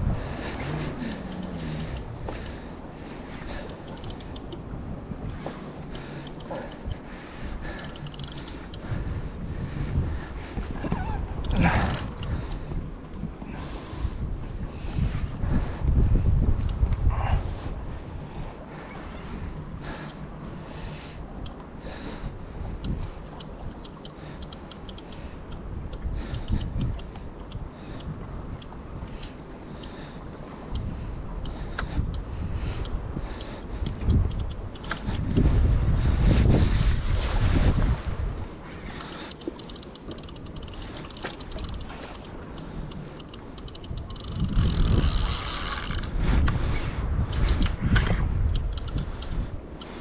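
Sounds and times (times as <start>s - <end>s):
wind rumble on microphone: 0.0s - 50.0s
fishing reel clicking: 1.1s - 2.6s, 3.6s - 4.6s, 5.9s - 7.0s, 7.6s - 8.9s, 11.4s - 12.5s, 22.8s - 30.0s, 32.8s - 35.5s, 39.1s - 46.1s, 47.3s - 47.8s, 48.5s - 50.0s.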